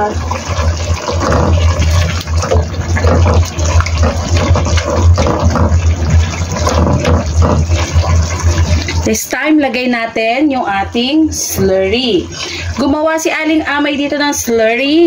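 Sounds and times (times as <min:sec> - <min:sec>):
thick sauce bubbling: 0:00.0 - 0:09.1
spatula stirring against pan: 0:00.9 - 0:09.0.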